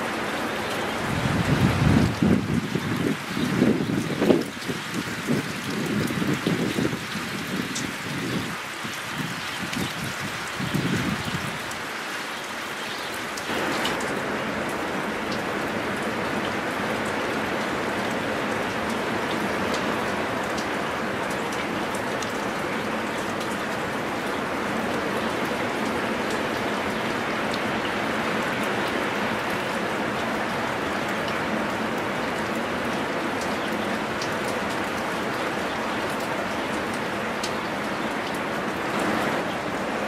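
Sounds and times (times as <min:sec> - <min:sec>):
storm wind rushing through trees: 0:00.0 - 0:40.0.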